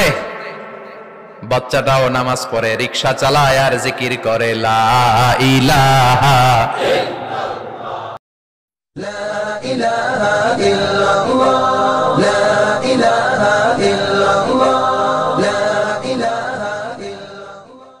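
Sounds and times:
chanted vocal jingle: 9.0s - 18.0s.

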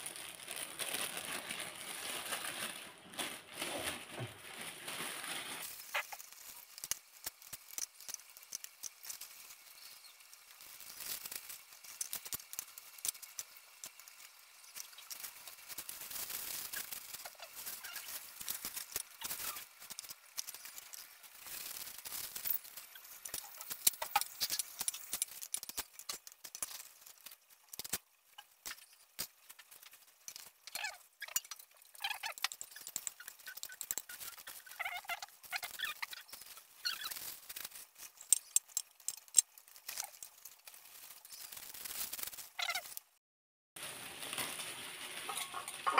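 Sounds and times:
plastic bags crinkling: 0.0s - 43.0s, 43.8s - 45.9s
crackly hiss: 5.0s - 43.1s.

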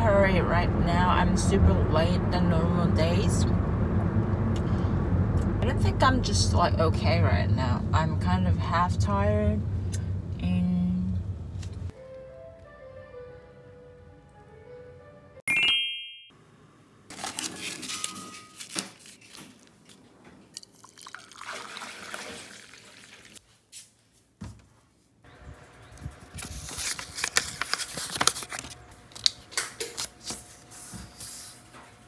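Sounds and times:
water poured into mug: 20.6s - 23.4s.

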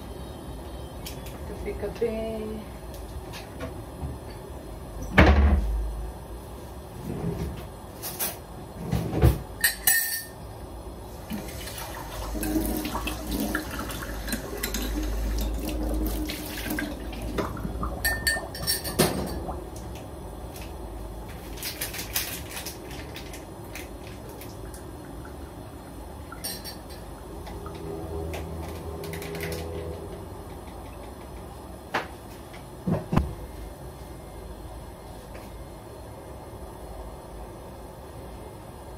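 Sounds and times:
dishes and utensils clinking: 9.6s - 10.4s, 18.0s - 19.4s, 26.3s - 27.1s.

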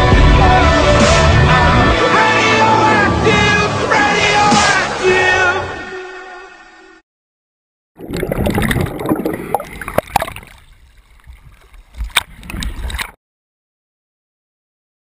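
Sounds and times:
sea water sloshing and gurgling: 8.0s - 13.2s.

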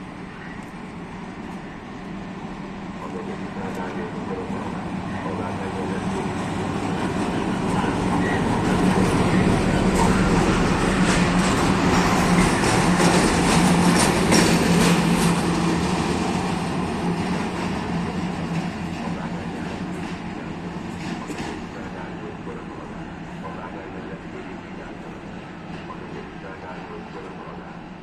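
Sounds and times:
diesel locomotives passing: 0.0s - 28.0s
train wheels clicking: 6.4s - 20.2s.

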